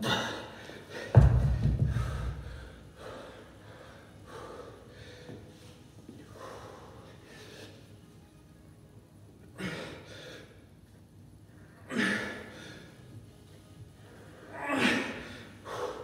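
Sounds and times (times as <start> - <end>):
man breathing hard: 1.8 - 5.5, 6.3 - 7.8, 14.0 - 16.0.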